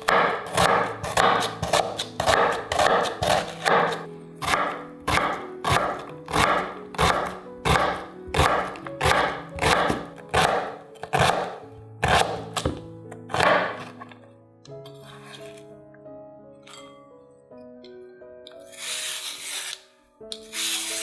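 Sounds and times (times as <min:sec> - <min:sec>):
knife chopping onion on board: 0:00.0 - 0:13.9.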